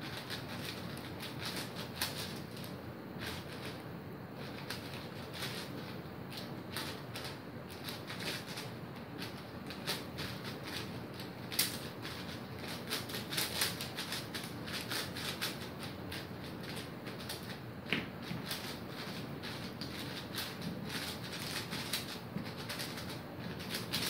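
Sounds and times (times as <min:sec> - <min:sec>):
plastic cube clicks and clacks: 0:11.5 - 0:24.0.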